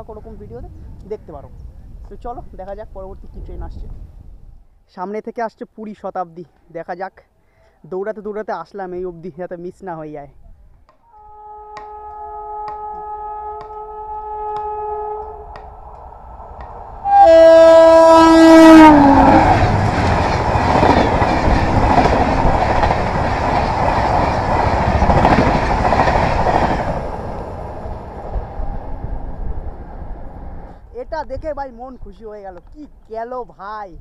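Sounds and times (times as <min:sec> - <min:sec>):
train horn blasting: 0:11.1 - 0:15.7, 0:17.0 - 0:19.6
electric locomotive passing at speed: 0:11.8 - 0:30.9
train wheels clacking on rails: 0:19.3 - 0:27.2.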